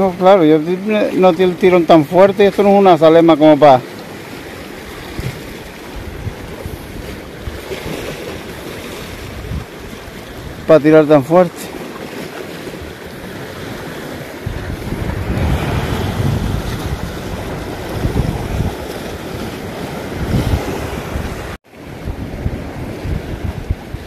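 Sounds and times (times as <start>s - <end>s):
sea waves breaking against rocks: 0.0s - 24.0s
wind buffeting microphone: 4.6s - 10.7s, 11.9s - 24.0s.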